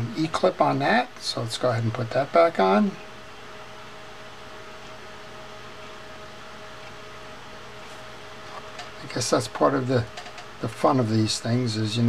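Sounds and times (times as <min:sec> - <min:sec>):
room hum and hiss: 0:00.0 - 0:12.0.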